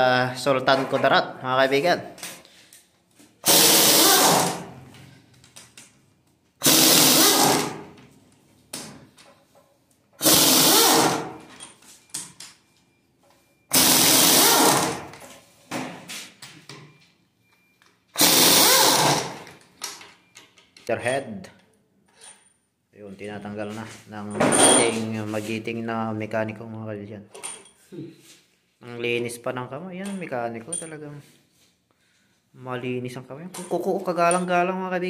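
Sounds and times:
power wrench bursts: 0:03.4 - 0:04.8, 0:06.6 - 0:08.0, 0:10.2 - 0:11.5, 0:13.7 - 0:15.1, 0:18.1 - 0:19.5.

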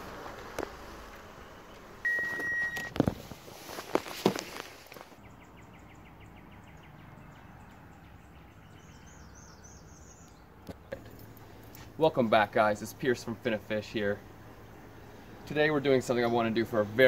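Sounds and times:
short beep: 0:02.0 - 0:03.0
bird calls: 0:05.0 - 0:11.9.

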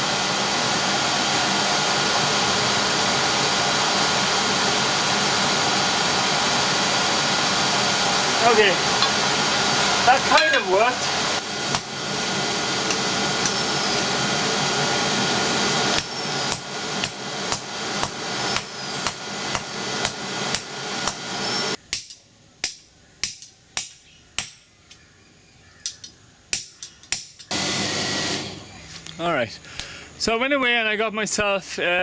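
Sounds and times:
hammer striking steel: 0:09.0 - 0:09.3, 0:10.1 - 0:11.0, 0:15.9 - 0:21.2, 0:21.9 - 0:24.6, 0:25.8 - 0:27.5.

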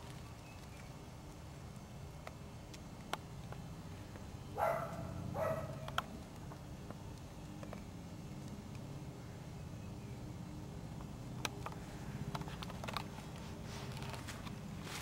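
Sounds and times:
dog barking: 0:04.6 - 0:05.9.

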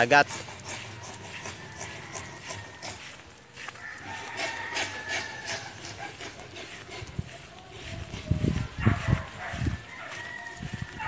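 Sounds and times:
rooster crowing faintly: 0:00.8 - 0:06.2, 0:08.6 - 0:11.0.

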